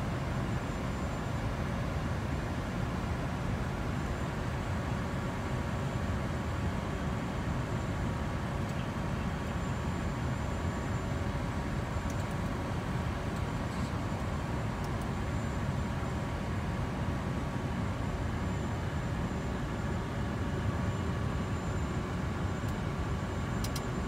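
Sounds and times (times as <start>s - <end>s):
airflow and engine noise: 0.0s - 24.0s
faint high whine: 0.0s - 24.0s
faint clicks: 23.6s - 23.9s.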